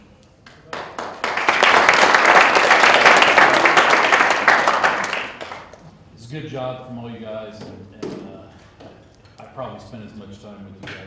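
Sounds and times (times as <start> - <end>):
people clapping: 0.4 - 5.9.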